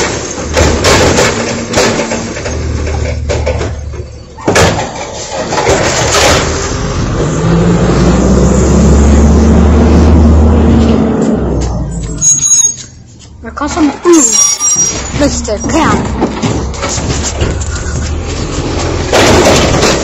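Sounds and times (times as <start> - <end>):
bin clatter: 0.0 - 6.7, 14.8 - 20.0
garbage truck engine revving: 0.0 - 13.1, 13.9 - 20.0.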